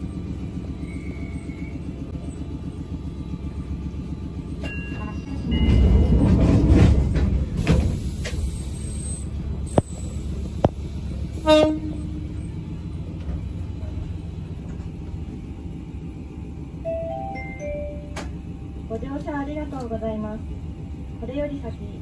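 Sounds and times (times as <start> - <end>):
train rumbling on rails: 0.0 - 22.0
train horn toot: 11.4 - 12.4.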